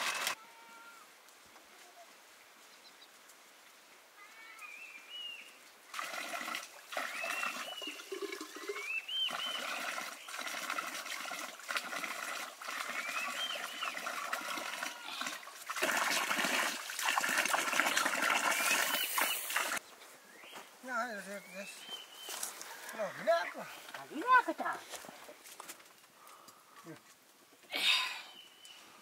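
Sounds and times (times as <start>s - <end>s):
bird whistled calls: 7.1s - 9.8s, 13.0s - 14.0s
splashing hissing noise: 14.9s - 19.8s.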